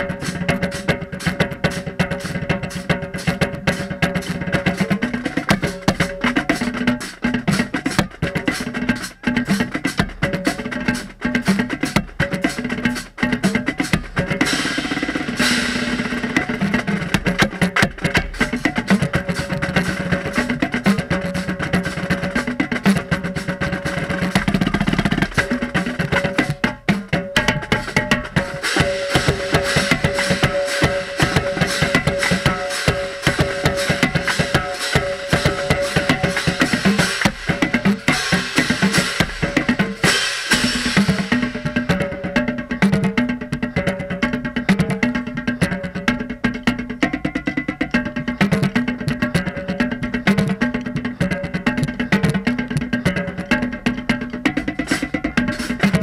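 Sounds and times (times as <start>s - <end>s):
marching drumline playing: 0.0s - 56.0s
tenor drums struck: 13.4s - 43.2s.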